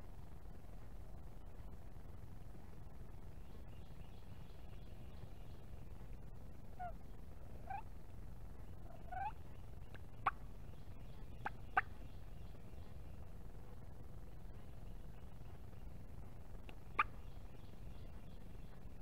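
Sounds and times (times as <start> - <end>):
low steady rumble: 0.0 - 19.0
turkey calling: 7.6 - 7.9, 8.8 - 10.5, 11.3 - 12.0, 16.7 - 17.6.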